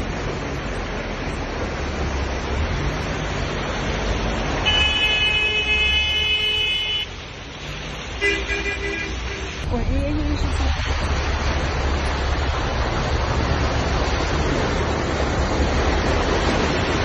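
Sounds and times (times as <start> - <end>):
cars moving through water: 0.0 - 17.0
water rushing in flooded street: 0.0 - 17.0
car horn: 4.6 - 7.1, 8.2 - 9.6.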